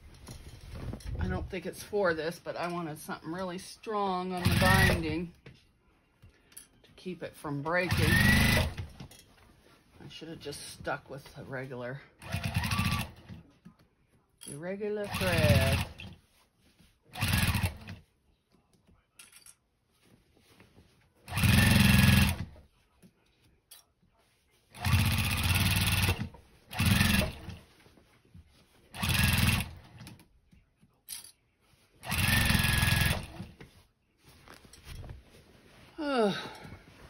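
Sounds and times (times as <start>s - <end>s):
sewing machine stitching: 4.4s - 5.2s, 7.9s - 8.9s, 12.2s - 13.4s, 15.0s - 16.1s, 17.1s - 18.0s, 21.3s - 22.6s, 24.7s - 27.6s, 28.9s - 30.2s, 32.0s - 33.6s.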